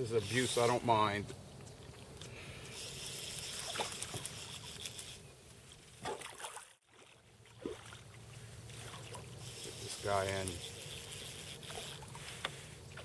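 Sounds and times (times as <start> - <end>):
water splashing: 6.0 - 9.7.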